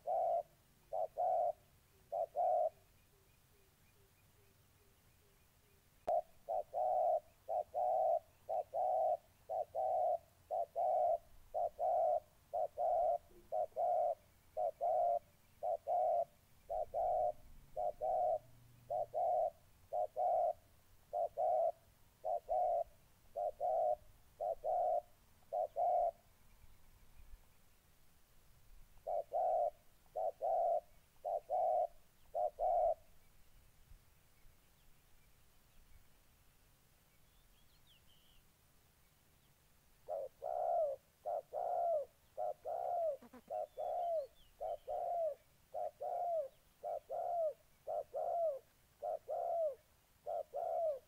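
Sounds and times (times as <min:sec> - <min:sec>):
doves cooing: 0:00.0 - 0:05.4, 0:06.0 - 0:26.2, 0:29.0 - 0:33.1, 0:40.0 - 0:51.0.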